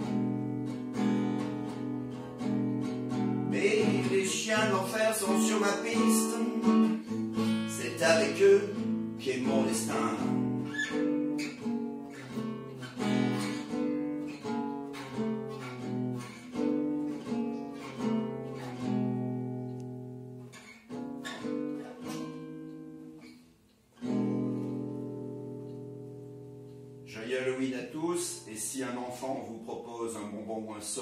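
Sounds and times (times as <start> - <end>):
acoustic guitar blues chords: 0.0 - 31.0.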